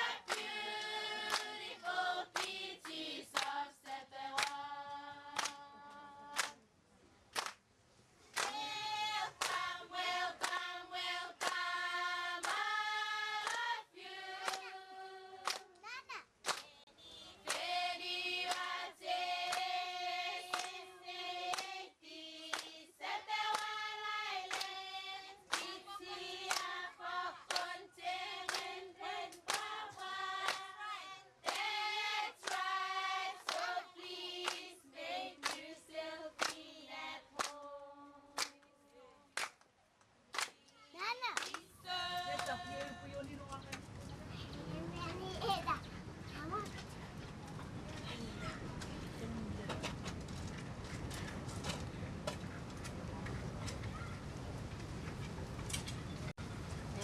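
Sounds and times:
group chanting in unison: 0:00.0 - 0:05.7, 0:08.5 - 0:15.5
hand claps: 0:00.3 - 0:01.6, 0:02.3 - 0:03.6, 0:04.3 - 0:04.6, 0:05.4 - 0:05.6, 0:06.4 - 0:06.6, 0:07.3 - 0:07.6, 0:08.4 - 0:08.7, 0:09.4 - 0:09.7, 0:10.4 - 0:10.7, 0:11.4 - 0:11.6, 0:12.4 - 0:12.6, 0:13.4 - 0:13.7, 0:14.4 - 0:14.7, 0:15.4 - 0:15.8, 0:16.4 - 0:16.7, 0:17.4 - 0:17.7, 0:18.5 - 0:18.7, 0:19.5 - 0:19.7, 0:20.5 - 0:20.8, 0:21.5 - 0:21.7, 0:22.5 - 0:22.7, 0:23.5 - 0:23.7, 0:24.5 - 0:24.7, 0:25.5 - 0:25.8, 0:26.5 - 0:26.7, 0:27.5 - 0:27.7, 0:28.5 - 0:28.7, 0:29.4 - 0:29.8, 0:30.4 - 0:30.6, 0:31.4 - 0:31.7, 0:32.4 - 0:32.7, 0:33.4 - 0:33.7, 0:34.4 - 0:34.7, 0:35.4 - 0:35.7, 0:36.4 - 0:36.6, 0:37.4 - 0:37.6, 0:39.4 - 0:39.7, 0:40.3 - 0:40.6, 0:41.3 - 0:41.6.

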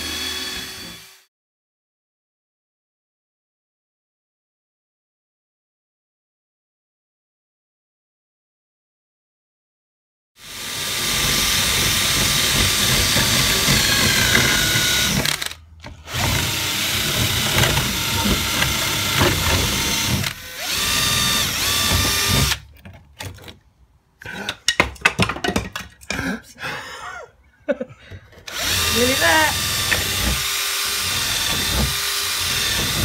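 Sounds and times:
cordless drill boring into wood: 0:00.0 - 0:01.3, 0:10.4 - 0:22.7, 0:28.4 - 0:33.0.

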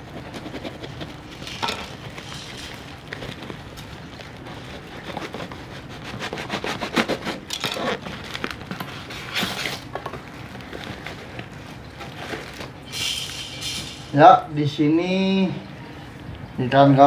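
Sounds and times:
tape and paper tearing: 0:00.0 - 0:03.9, 0:04.5 - 0:09.9.

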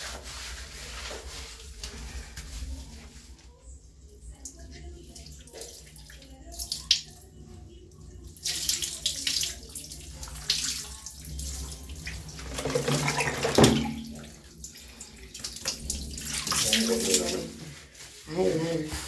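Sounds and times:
running water splashing: 0:08.2 - 0:19.0.

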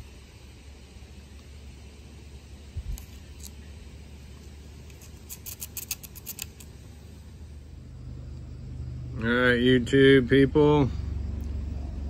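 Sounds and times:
low steady rumble: 0:00.0 - 0:12.0
metal parts clicking: 0:05.3 - 0:06.7.

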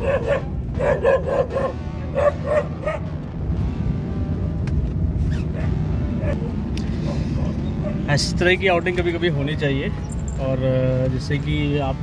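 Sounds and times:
small dog barking: 0:00.0 - 0:03.0
car driving hum: 0:00.0 - 0:12.0.

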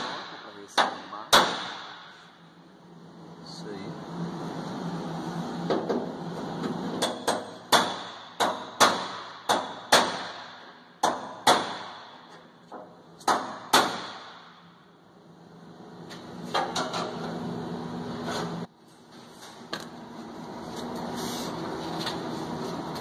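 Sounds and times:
hammer striking sheet metal: 0:00.0 - 0:02.4, 0:07.0 - 0:12.5, 0:13.2 - 0:14.7.

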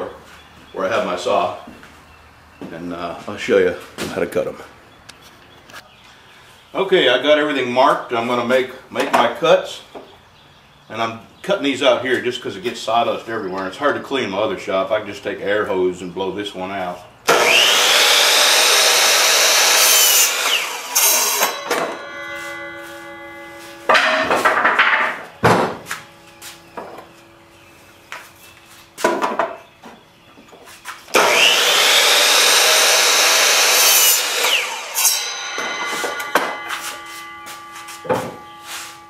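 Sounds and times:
miter saw cutting wood: 0:17.3 - 0:24.6, 0:31.1 - 0:39.0
sharp knocks: 0:21.4 - 0:23.2, 0:23.9 - 0:26.1, 0:35.2 - 0:37.4, 0:38.0 - 0:38.5.

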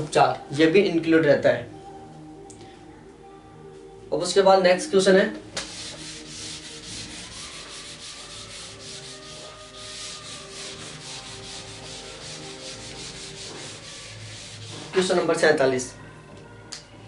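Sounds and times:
eraser rubbing on whiteboard: 0:05.6 - 0:15.3.

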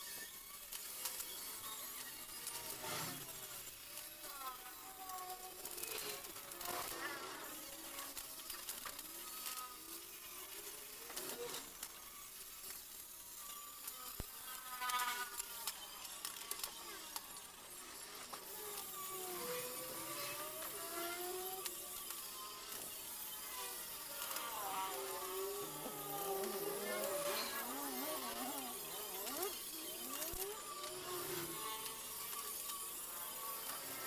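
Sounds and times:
welding arc crackling: 0:00.6 - 0:34.0.

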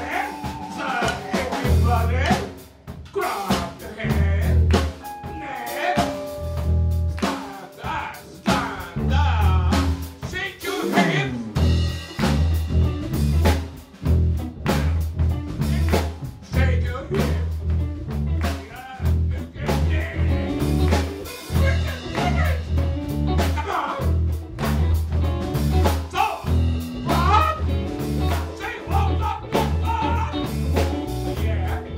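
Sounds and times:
person singing: 0:00.0 - 0:02.4, 0:03.2 - 0:11.4, 0:18.6 - 0:22.7, 0:26.2 - 0:31.9
electric guitars: 0:00.0 - 0:02.7, 0:03.5 - 0:31.9
drum kit: 0:00.0 - 0:31.9
pulsing bass line: 0:06.0 - 0:07.5, 0:08.8 - 0:10.1, 0:11.0 - 0:18.5, 0:19.1 - 0:31.9.

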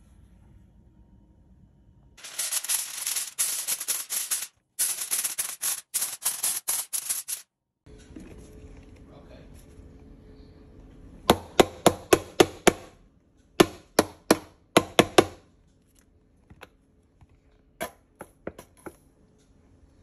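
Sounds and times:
aluminium foil crinkling: 0:02.2 - 0:07.4.

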